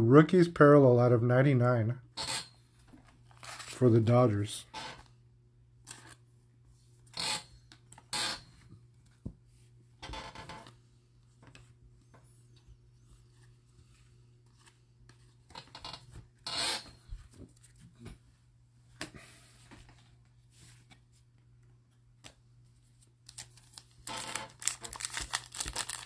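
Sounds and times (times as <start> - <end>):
cards rustling in plastic sleeve: 3.2 - 4.4, 23.0 - 26.0.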